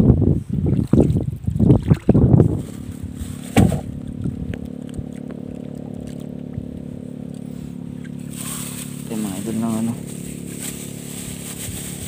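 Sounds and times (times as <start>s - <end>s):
steady low hum: 0.0s - 12.0s
paddle stroking water: 3.0s - 9.1s.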